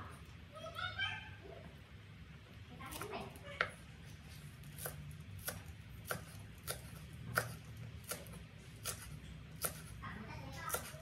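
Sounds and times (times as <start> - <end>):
cleaver chopping on wooden board: 4.8 - 9.9.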